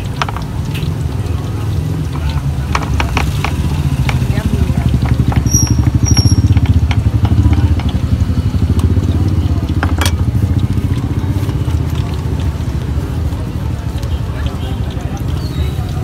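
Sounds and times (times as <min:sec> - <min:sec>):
motorcycle engine idling: 0:03.0 - 0:11.7.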